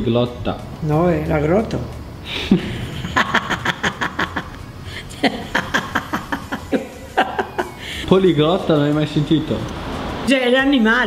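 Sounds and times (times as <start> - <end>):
elderly woman laughing: 2.3 - 8.1.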